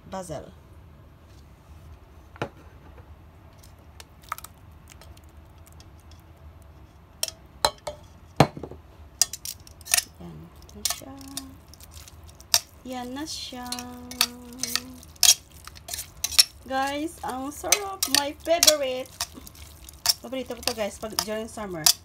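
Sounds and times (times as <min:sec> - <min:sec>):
metal tongs clicking on a pot: 0:09.2 - 0:22.0.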